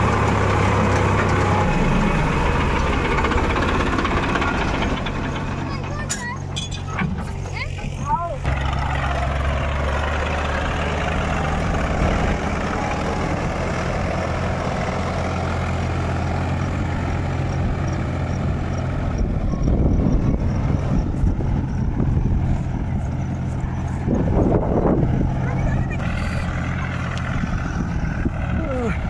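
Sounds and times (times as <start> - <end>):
rough low rumble: 0.0 - 29.0
tractor diesel engine running: 0.0 - 29.0.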